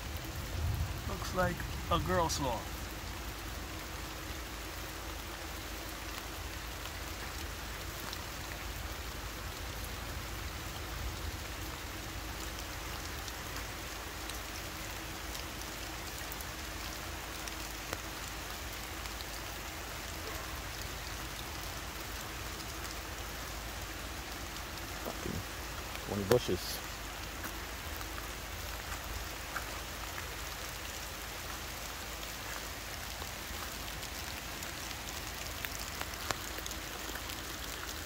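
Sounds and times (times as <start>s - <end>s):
rain falling on foliage: 0.0s - 38.0s.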